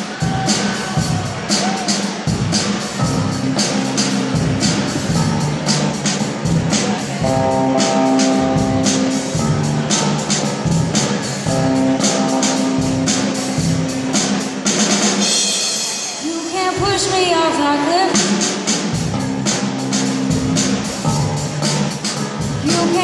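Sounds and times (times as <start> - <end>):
drum kit with cymbals: 0.0 - 23.0
electric guitars playing chord riff: 2.4 - 15.8, 19.0 - 23.0.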